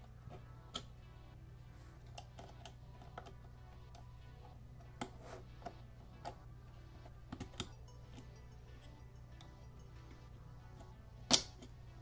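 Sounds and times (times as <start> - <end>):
quiet background music: 0.0 - 12.0
memory sticks clicking into slot: 10.8 - 11.8.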